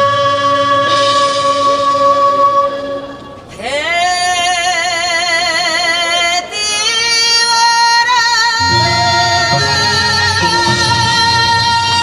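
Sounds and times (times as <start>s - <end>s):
woman singing with vibrato: 0.0s - 12.0s
low backing accompaniment: 8.6s - 12.0s.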